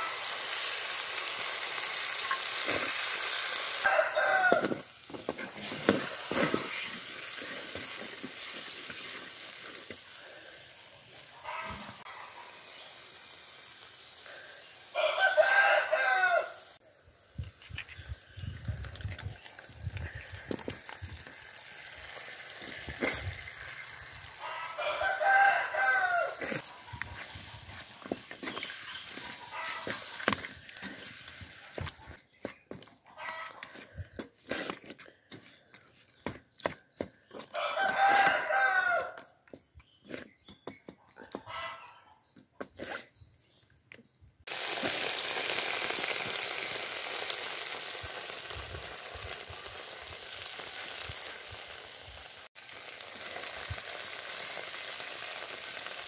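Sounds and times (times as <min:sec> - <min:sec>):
oil sizzling in a pan: 0:00.0 - 0:32.0, 0:44.5 - 0:56.0
rooster crowing: 0:03.8 - 0:04.9, 0:14.9 - 0:16.8, 0:24.4 - 0:26.7, 0:37.4 - 0:39.2
wooden spatula scraping: 0:04.6 - 0:09.2, 0:26.4 - 0:32.1.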